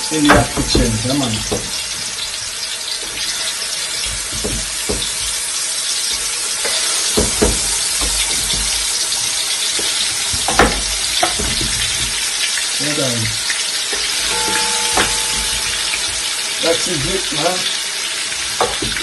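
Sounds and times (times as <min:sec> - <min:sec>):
spoon knocking against pot: 0:00.0 - 0:02.2, 0:04.0 - 0:05.4, 0:06.1 - 0:09.2, 0:09.8 - 0:12.3, 0:13.9 - 0:16.4, 0:18.6 - 0:19.0
meat frying in hot oil: 0:00.0 - 0:19.0.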